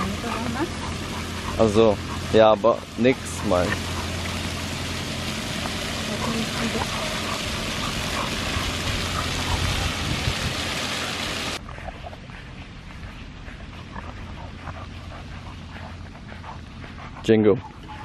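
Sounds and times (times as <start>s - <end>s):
fountain jets splashing: 0.0s - 11.6s
quiet outdoor background: 10.8s - 18.0s.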